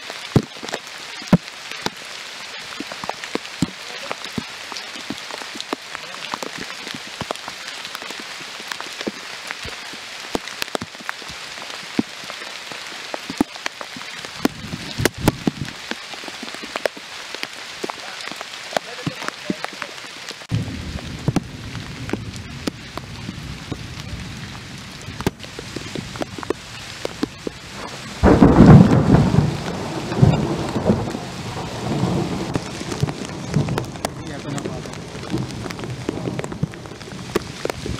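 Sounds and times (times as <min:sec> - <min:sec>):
heavy rain on foliage: 0:00.0 - 0:37.9
loud thunderclap: 0:20.5 - 0:25.4, 0:27.8 - 0:37.9
low thunder rumbles: 0:20.5 - 0:37.9.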